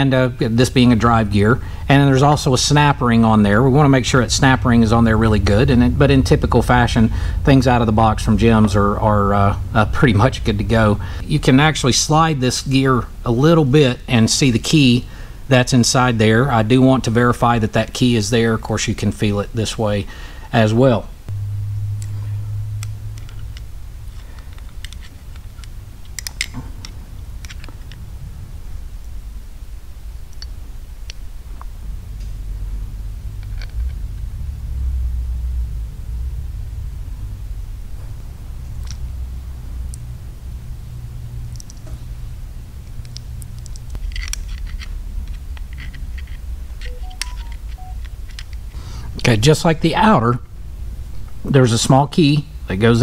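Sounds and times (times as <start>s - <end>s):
low steady hum: 0.0s - 53.0s
short high tones: 21.3s - 24.0s, 46.9s - 48.0s
metal parts clicking and scraping: 24.1s - 26.6s, 27.4s - 28.0s, 43.6s - 48.7s.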